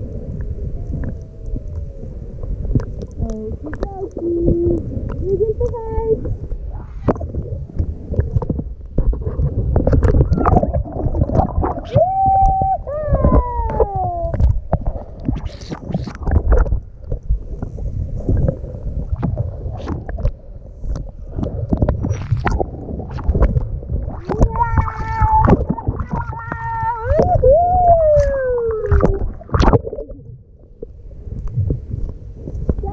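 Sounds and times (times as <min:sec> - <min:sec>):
water sloshing and splashing: 0:00.0 - 0:32.9.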